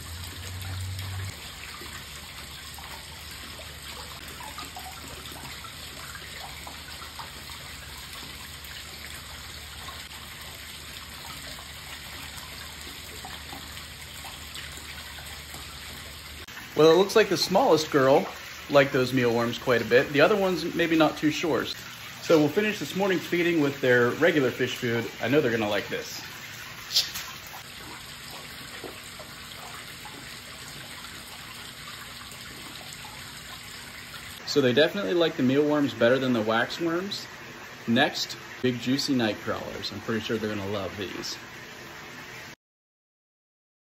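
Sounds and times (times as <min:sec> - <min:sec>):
water drips: 0:00.0 - 0:42.5
water trickling into pond: 0:00.0 - 0:42.6
splash on water surface: 0:26.8 - 0:27.7.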